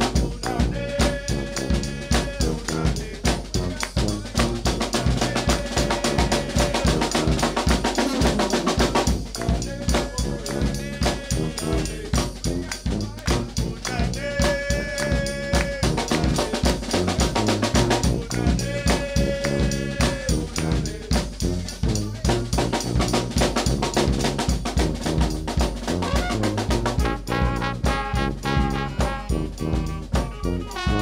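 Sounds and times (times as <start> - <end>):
band members chanting: 0.0 - 22.5
bass and snare drum groove: 0.0 - 31.0
brass band playing: 0.0 - 31.0
horns and flute: 0.0 - 31.0
sousaphone bass line: 0.0 - 31.0.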